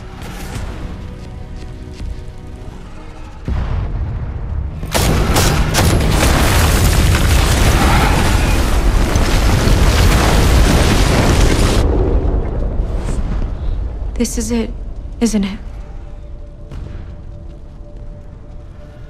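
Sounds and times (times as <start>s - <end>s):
low rumble: 2.6s - 19.0s
explosion blast: 3.5s - 14.2s
rush of fire and falling debris: 3.5s - 14.2s.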